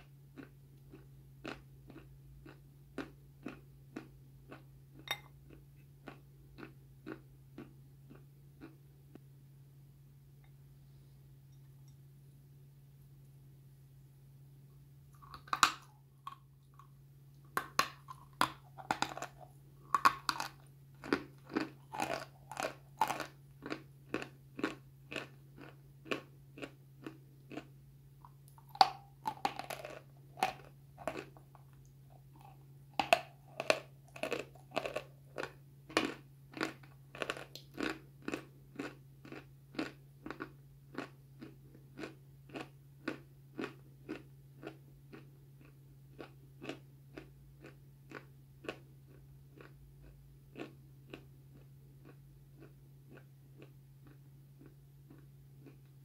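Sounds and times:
faint low hum: 0:00.0 - 0:56.0
chalk crunching when chewed: 0:00.4 - 0:08.8, 0:15.2 - 0:56.0.

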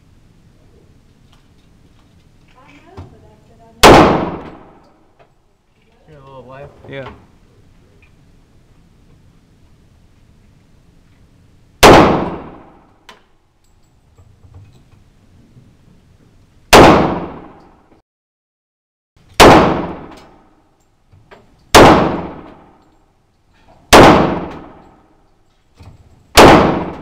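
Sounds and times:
pistol shots echoing indoors: 0:03.8 - 0:04.9, 0:11.8 - 0:12.9, 0:16.7 - 0:17.9, 0:19.4 - 0:20.6, 0:21.7 - 0:22.8, 0:23.9 - 0:25.2, 0:26.3 - 0:27.0.

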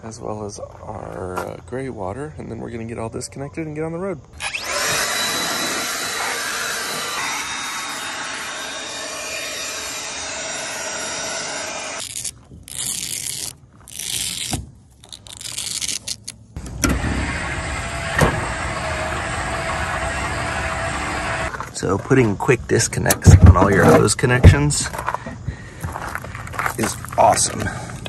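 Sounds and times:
leaf blower running: 0:04.4 - 0:12.0, 0:16.6 - 0:21.5
electric motor hum: 0:04.4 - 0:13.5, 0:16.6 - 0:21.6.

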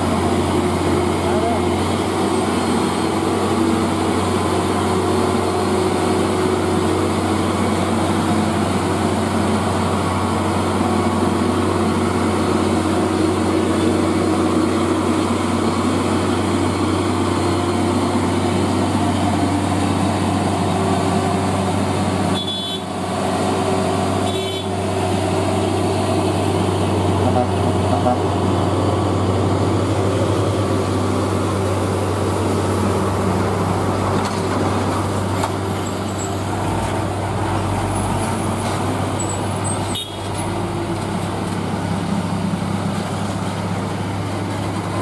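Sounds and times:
truck diesel engine pulling uphill: 0:00.0 - 0:45.0
high-pitched horn toots: 0:22.3 - 0:22.9, 0:24.2 - 0:24.8, 0:27.2 - 0:28.3, 0:39.9 - 0:40.3.

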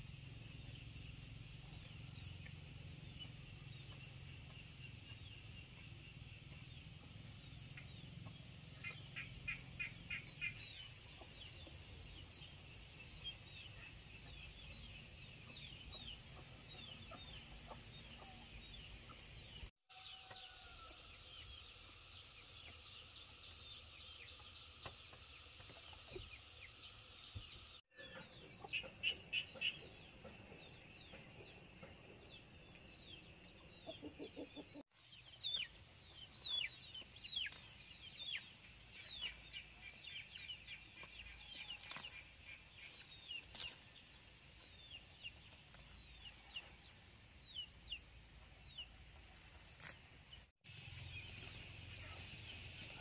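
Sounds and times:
chicks peeping and chirping: 0:00.2 - 0:19.7, 0:22.3 - 0:53.0
chickens clucking: 0:00.4 - 0:19.7, 0:28.0 - 0:49.6.

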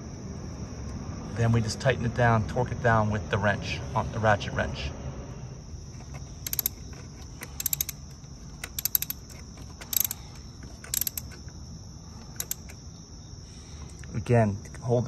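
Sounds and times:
ratchet wrench clicking: 0:06.4 - 0:11.5, 0:12.3 - 0:12.8.

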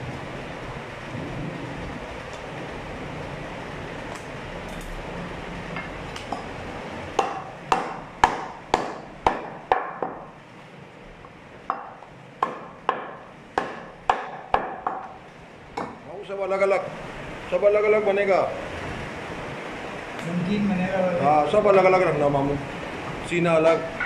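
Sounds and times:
cleaver chopping on wooden block: 0:07.2 - 0:10.2, 0:11.7 - 0:15.1.

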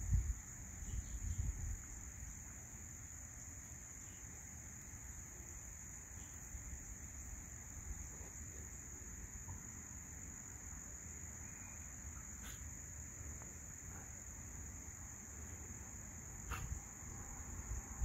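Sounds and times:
crickets chirping: 0:00.0 - 0:18.0.

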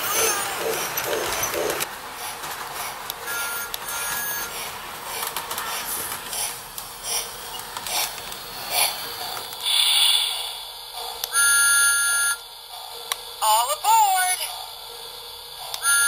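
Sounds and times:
toy train clicking and chuffing: 0:00.0 - 0:16.0
loud hiss of steam: 0:09.6 - 0:10.8
electronic whistle tone: 0:11.3 - 0:12.4.

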